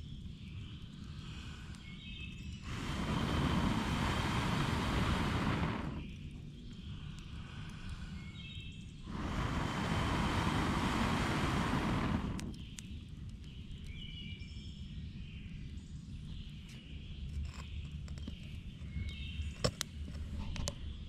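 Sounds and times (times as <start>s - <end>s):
person blowing on embers: 1.0s - 12.8s.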